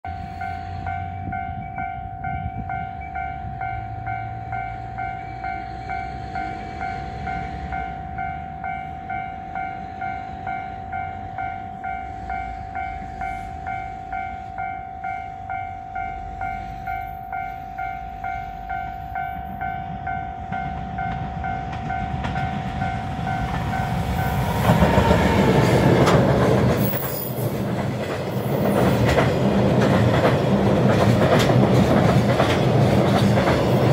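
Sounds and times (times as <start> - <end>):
level crossing warning bell: 0.0 - 25.4
freight train rumble: 0.0 - 33.9
train wheels clattering over rail joints: 20.5 - 33.9.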